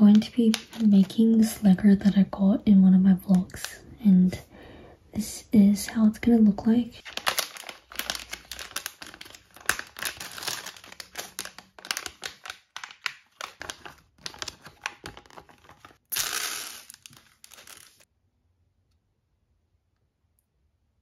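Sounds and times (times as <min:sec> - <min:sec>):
plastic packet crinkling: 0:00.0 - 0:01.5, 0:07.0 - 0:18.1
plastic rustling: 0:00.0 - 0:01.5, 0:07.0 - 0:18.1.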